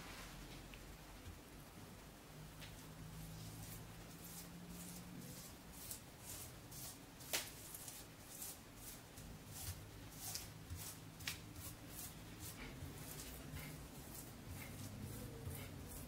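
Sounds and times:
spoon scraping over dough: 0:03.4 - 0:16.0.

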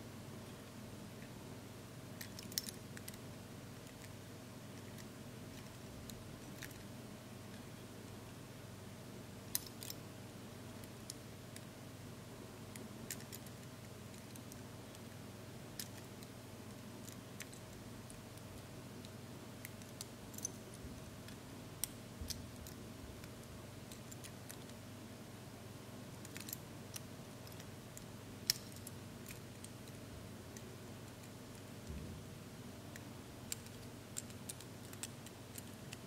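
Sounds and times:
steady low hum: 0:00.0 - 0:36.0
small metallic clicks and taps: 0:02.2 - 0:03.2, 0:17.0 - 0:24.8, 0:26.2 - 0:32.0, 0:32.9 - 0:36.0.

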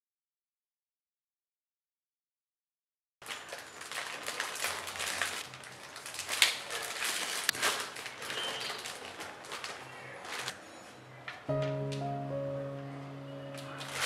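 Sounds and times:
plastic bag crinkling: 0:03.2 - 0:10.6, 0:13.6 - 0:14.0
plastic bag snaps: 0:03.9 - 0:09.8.

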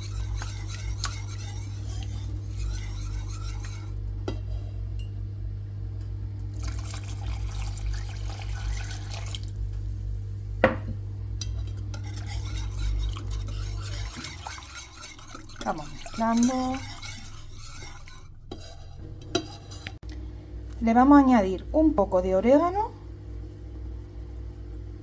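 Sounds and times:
whisk clinking against pan: 0:00.0 - 0:04.0, 0:11.4 - 0:20.0
whisk scraping sauce in pan: 0:00.0 - 0:04.1, 0:06.6 - 0:09.5, 0:11.4 - 0:20.0
steady low hum: 0:00.0 - 0:25.0.

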